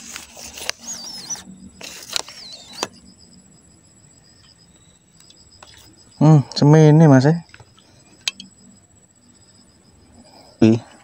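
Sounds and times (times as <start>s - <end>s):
fishing pole handling rustle: 0.0s - 2.9s
faint wavering whistle: 0.0s - 6.5s
faint steady high tone: 0.0s - 11.0s.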